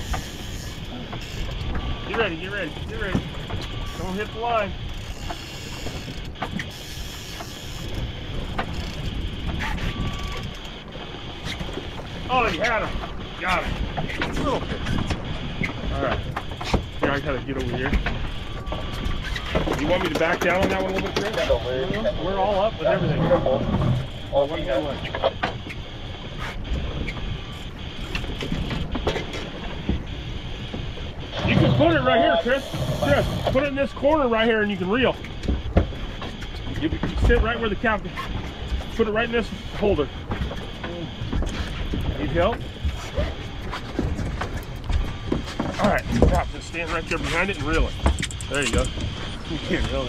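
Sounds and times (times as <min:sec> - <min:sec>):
gear clicks and knocks: 0:00.0 - 0:22.0, 0:32.6 - 0:50.0
outboard motor rumbling: 0:00.0 - 0:50.0
water noise: 0:00.0 - 0:50.0
wind noise: 0:00.0 - 0:50.0
sharp clicks and knocks: 0:43.7 - 0:50.0.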